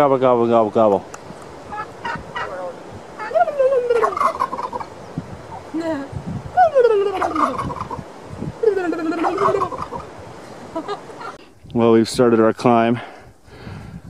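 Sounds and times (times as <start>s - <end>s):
turkey gobbling: 1.7s - 4.9s, 6.6s - 8.1s, 8.8s - 10.1s.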